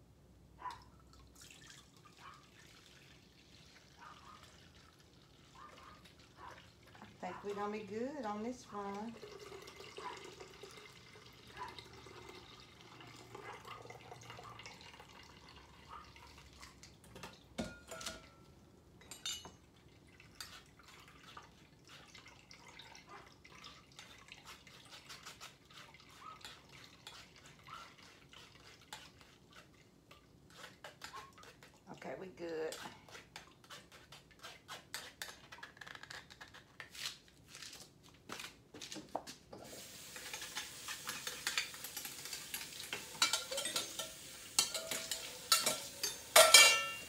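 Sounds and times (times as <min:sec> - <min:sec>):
juice pouring through strainer: 0:01.0 - 0:05.7, 0:09.1 - 0:17.0.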